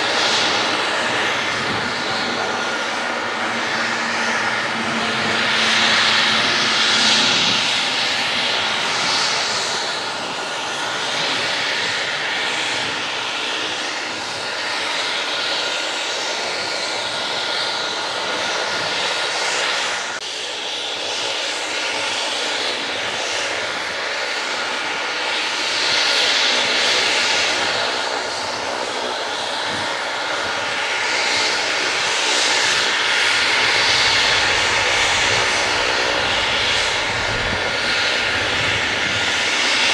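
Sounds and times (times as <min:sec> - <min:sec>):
helicopter rotors rushing: 0:00.0 - 0:14.6, 0:26.2 - 0:39.9
helicopter turbine whine: 0:00.0 - 0:39.9.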